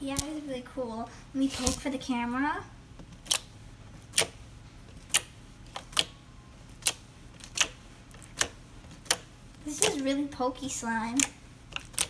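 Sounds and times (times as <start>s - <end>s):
slime clicking when poked: 3.2s - 3.5s, 4.1s - 4.4s, 5.0s - 6.1s, 6.8s - 10.0s, 11.2s - 12.0s.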